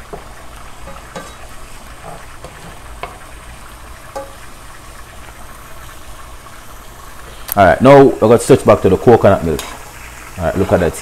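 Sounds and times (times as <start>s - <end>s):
spoon knocking against pan: 0.0s - 3.3s, 4.1s - 4.4s
wooden spoon stirring: 0.0s - 4.6s
onions sizzling in oil: 0.0s - 11.0s.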